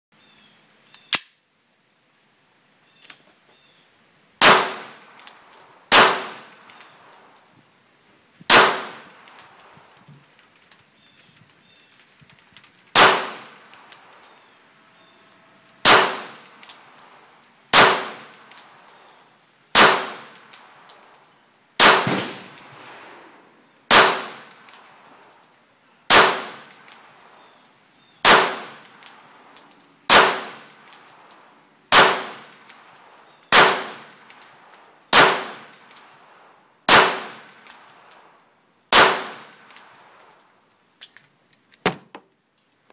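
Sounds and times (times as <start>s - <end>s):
pistol shots: 4.4s - 5.0s, 5.9s - 6.5s, 8.5s - 9.2s, 13.0s - 13.6s, 15.8s - 16.5s, 17.7s - 18.3s, 19.8s - 20.4s, 21.8s - 22.9s, 23.9s - 24.6s, 26.1s - 26.7s, 28.2s - 28.8s, 30.1s - 30.7s, 31.9s - 32.5s, 33.5s - 34.1s, 35.1s - 35.7s, 36.9s - 37.5s, 38.9s - 39.5s
small metal clinks: 5.0s - 5.9s, 6.5s - 7.7s, 9.0s - 12.9s, 13.6s - 15.8s, 16.4s - 17.6s, 18.3s - 19.6s, 20.3s - 21.6s, 22.5s - 23.0s, 24.6s - 25.9s, 26.7s - 28.2s, 28.8s - 30.1s, 30.7s - 31.7s, 32.5s - 36.6s, 37.5s - 38.6s, 39.6s - 42.2s.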